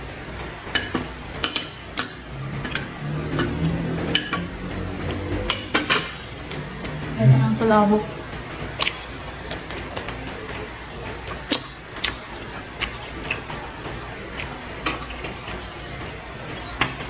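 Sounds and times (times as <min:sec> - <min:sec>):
steady low hum: 0:00.0 - 0:17.0
mouth chewing food: 0:11.5 - 0:13.7.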